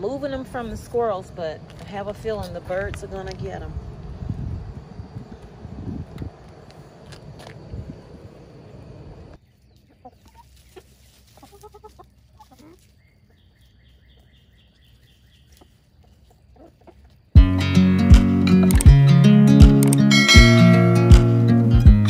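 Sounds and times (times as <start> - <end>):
hens clucking: 9.2 - 17.4
acoustic guitar music: 17.4 - 22.0.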